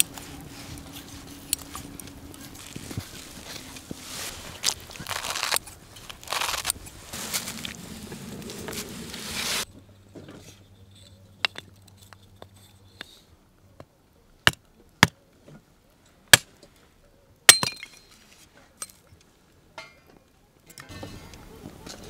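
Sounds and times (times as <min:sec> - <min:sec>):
hatchet chopping wood: 0:14.4 - 0:15.2, 0:17.5 - 0:17.9.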